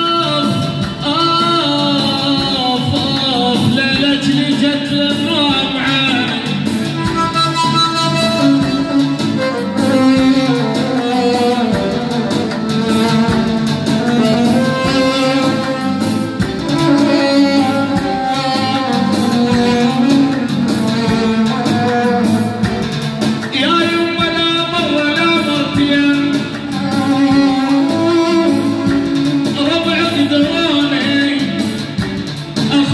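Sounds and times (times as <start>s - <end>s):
electronic keyboard melody: 0.0s - 32.9s.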